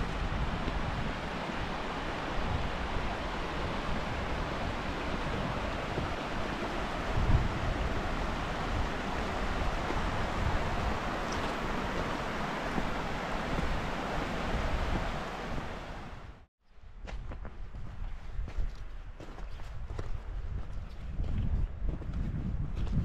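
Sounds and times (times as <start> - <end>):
river flowing over stones: 0.0 - 16.2
wind buffeting microphone: 0.0 - 23.0.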